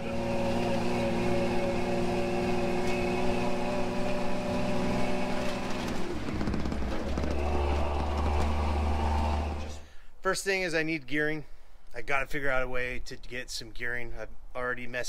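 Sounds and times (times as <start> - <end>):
car engine running inside cab: 0.0 - 9.8.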